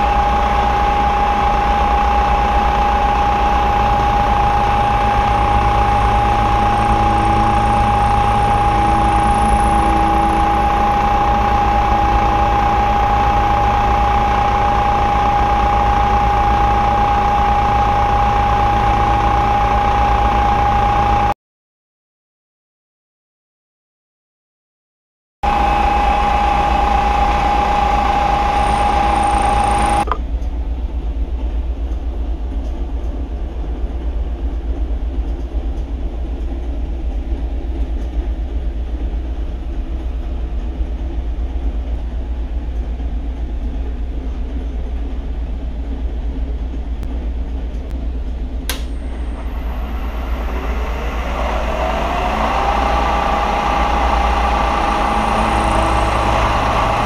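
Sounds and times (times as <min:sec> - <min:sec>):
low steady hum: 0:00.0 - 0:21.3, 0:25.5 - 0:57.0
milling machine spindle whine: 0:00.0 - 0:21.3, 0:25.4 - 0:30.2, 0:48.8 - 0:57.0
sharp click: 0:48.7 - 0:49.1.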